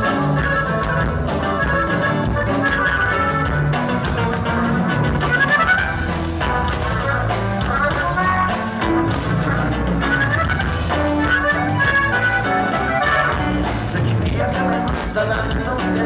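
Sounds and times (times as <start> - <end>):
button accordion melody: 0.0 - 14.0
acoustic guitar: 0.0 - 16.0
drum kit: 0.0 - 16.0.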